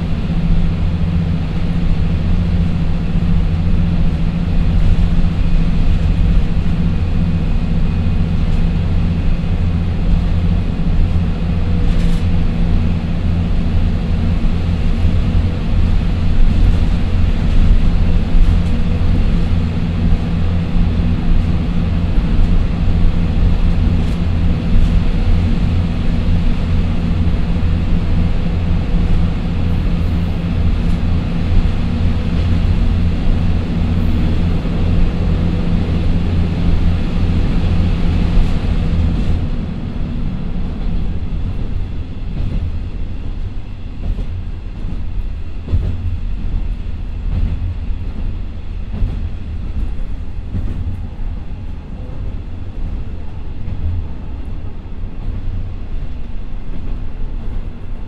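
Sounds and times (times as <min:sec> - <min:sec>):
diesel engines running: 0:00.0 - 0:56.8
wheels rumbling on rail: 0:00.0 - 0:58.0
wheels clicking on rail: 0:08.2 - 0:39.6.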